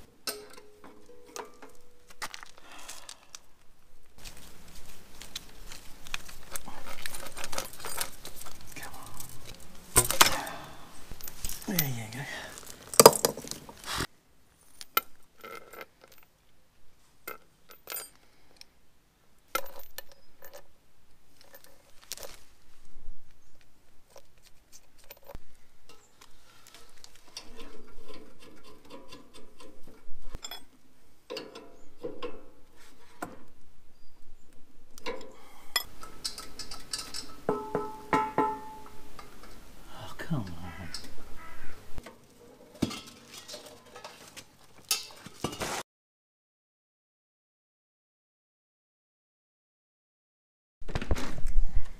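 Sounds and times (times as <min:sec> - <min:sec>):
metal fittings clicking and clinking: 0:35.0 - 0:39.6.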